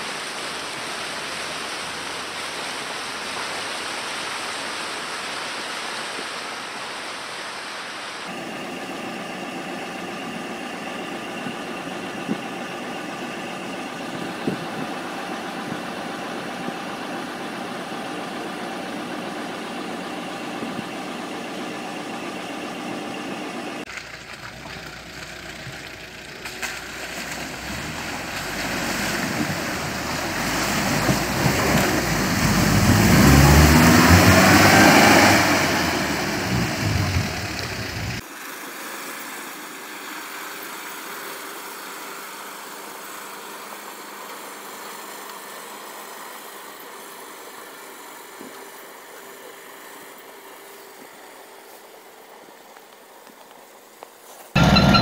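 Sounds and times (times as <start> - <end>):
vehicle engine revving: 8.3 - 38.2
thin steady engine sound: 8.3 - 55.0.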